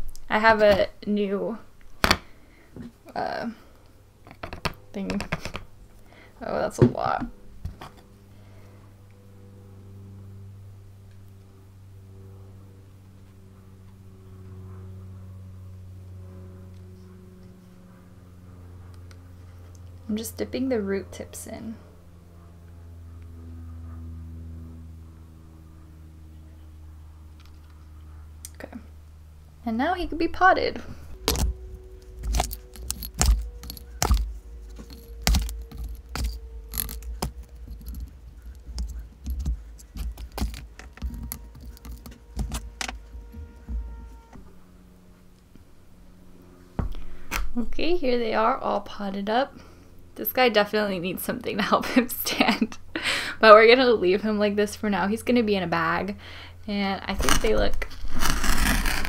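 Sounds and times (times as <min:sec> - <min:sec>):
low electrical hum: 0:00.0 - 0:59.0
potting mix scraping and rattling: 0:30.8 - 0:44.4, 0:57.1 - 0:59.0
light handling rustling: 0:31.2 - 0:44.4.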